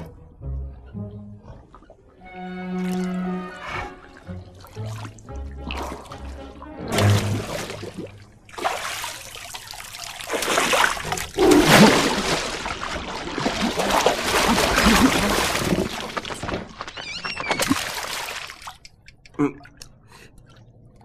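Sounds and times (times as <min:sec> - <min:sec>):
water splashing in fish tank: 0:06.9 - 0:16.8, 0:17.5 - 0:19.1.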